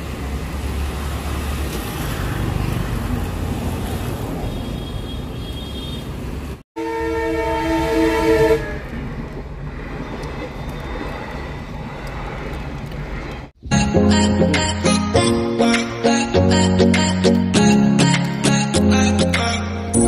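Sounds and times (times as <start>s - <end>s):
train rumbling past: 6.3s - 13.8s
train horn chord: 6.8s - 8.9s
outdoor rushing noise: 8.6s - 13.7s.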